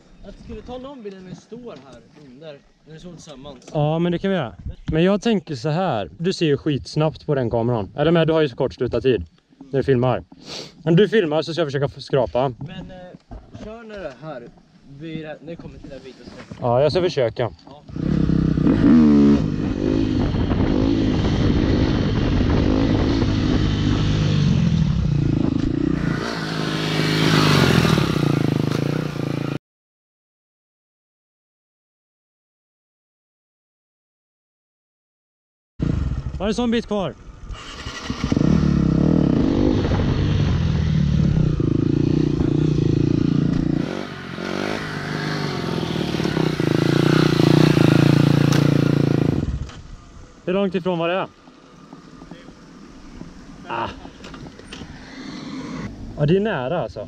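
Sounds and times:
dirt bike engine revving: 17.9 - 29.6, 37.5 - 49.7, 54.8 - 56.0.

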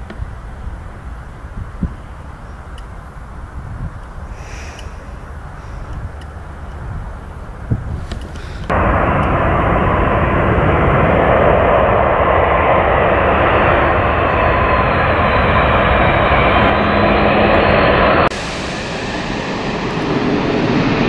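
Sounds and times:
jet engines roaring: 0.0 - 21.0
thin jet whine: 2.5 - 21.0.

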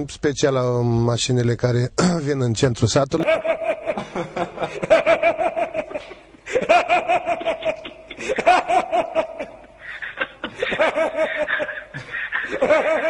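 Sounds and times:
man laughing: 3.2 - 13.0.

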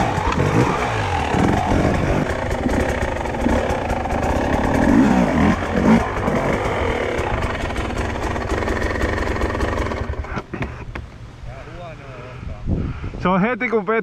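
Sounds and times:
dirt bike engine revving: 0.0 - 10.4.

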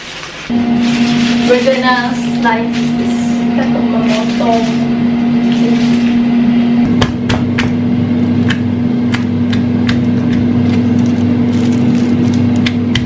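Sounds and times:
steady hum: 0.5 - 13.0
stone pestle pounding in mortar: 6.9 - 7.8, 8.4 - 10.8.

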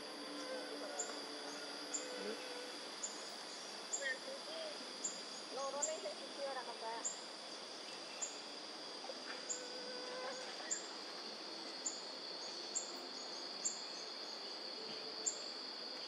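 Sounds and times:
high insect drone: 0.0 - 16.0.

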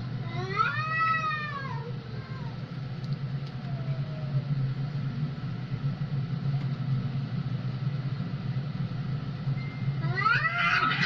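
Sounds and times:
cat growling: 10.0 - 11.0.

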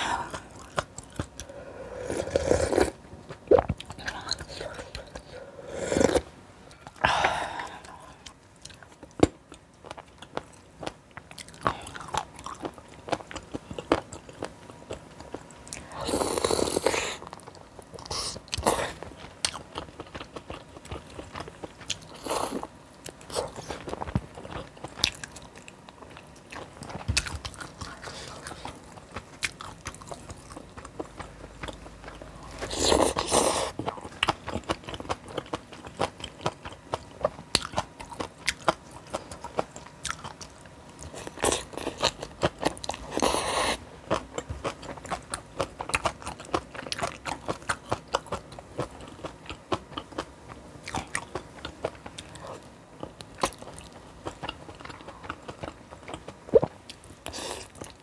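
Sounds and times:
wet chewing and crunching: 0.2 - 1.6, 6.0 - 58.0.

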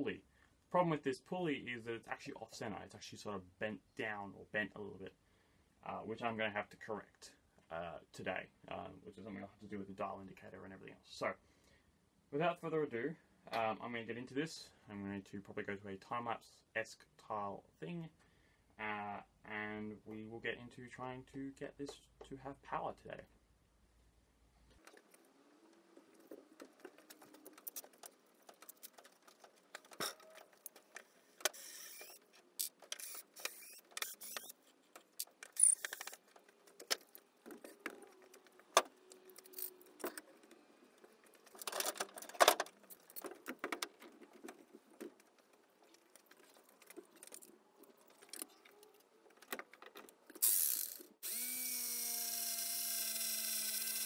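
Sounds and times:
electric motor humming: 31.5 - 32.2, 33.0 - 34.5, 50.4 - 54.0.

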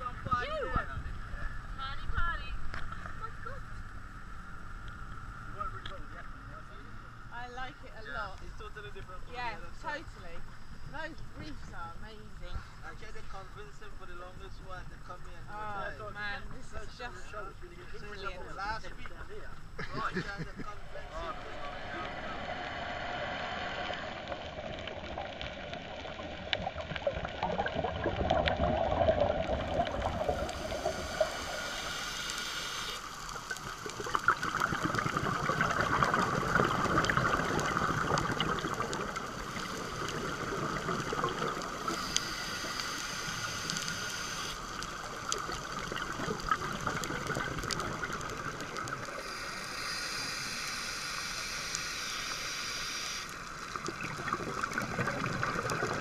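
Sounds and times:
muffled underwater rushing water: 15.6 - 56.0
small underwater clicks: 24.4 - 56.0.

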